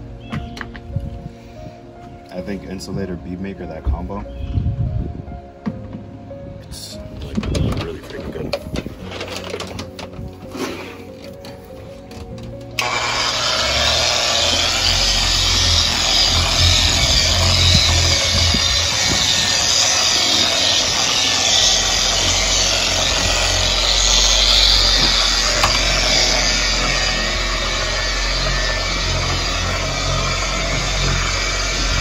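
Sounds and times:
power tool running: 12.6 - 32.0.

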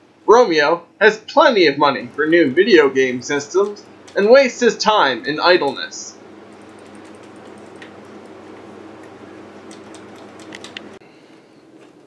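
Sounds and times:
steady low hum: 0.0 - 12.0
game controller buttons clicking: 9.7 - 10.9.

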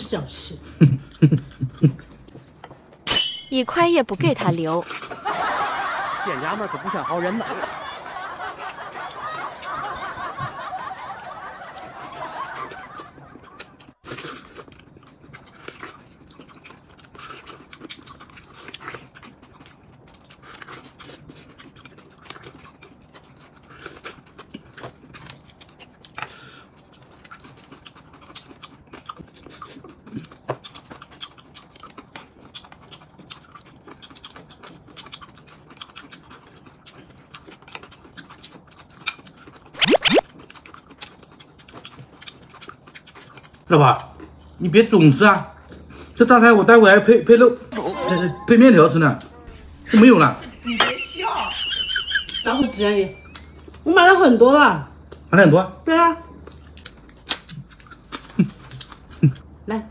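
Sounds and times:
people chewing food: 0.0 - 3.0, 4.0 - 59.7
loud warbling sound: 39.8 - 40.2.

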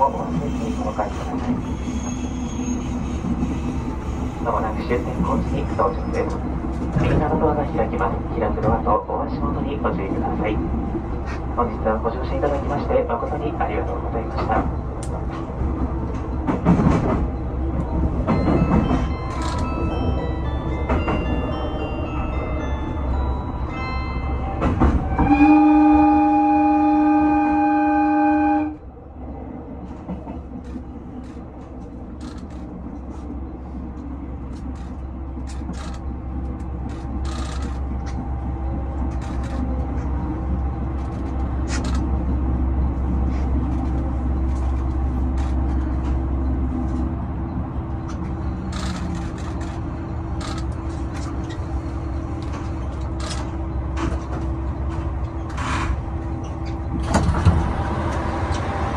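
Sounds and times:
train engine rumble: 0.0 - 58.9
wheels clicking over rail joints: 34.5 - 38.2, 48.0 - 51.6.

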